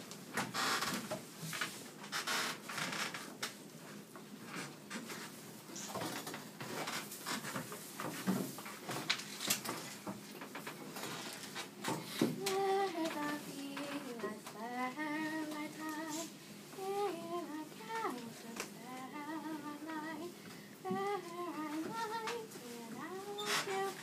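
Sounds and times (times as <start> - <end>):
child singing: 12.4 - 24.0.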